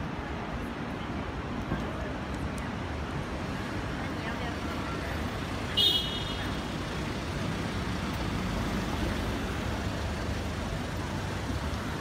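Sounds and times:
rumble of engines and tyres: 0.0 - 12.0.

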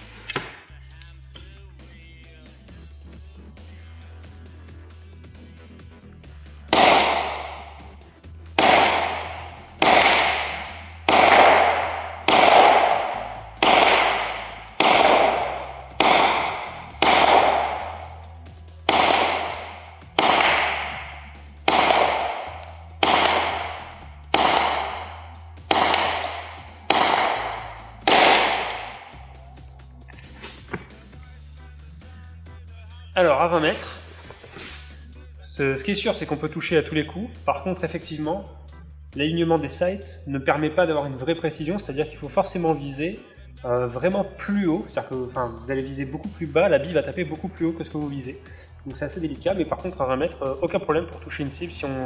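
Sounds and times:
airsoft pistol shots echoing: 6.7 - 8.0, 8.6 - 29.4.

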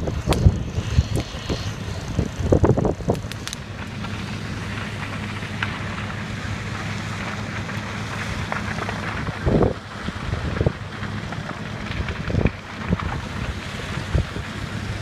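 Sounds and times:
wind on microphone: 0.0 - 3.4
vehicle road and engine hum: 0.0 - 15.0.

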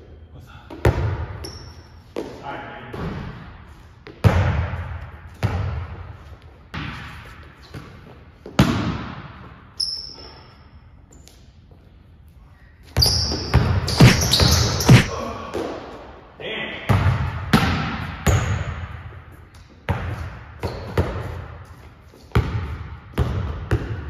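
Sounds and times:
basketball bouncing on gym court: 0.7 - 2.4, 3.0 - 9.7, 12.9 - 15.8, 16.9 - 21.7, 22.3 - 24.0.

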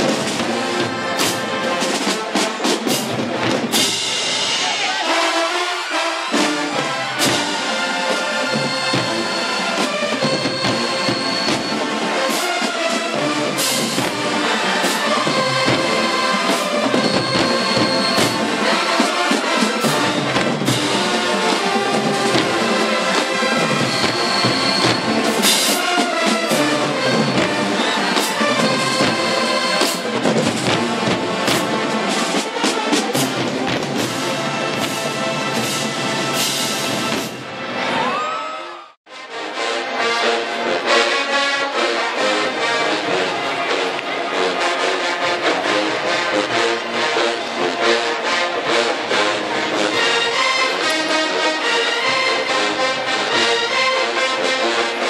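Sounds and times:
drum and cymbal hits: 0.0 - 5.1, 6.4 - 37.6
marching band playing: 0.0 - 38.5, 39.1 - 55.0.

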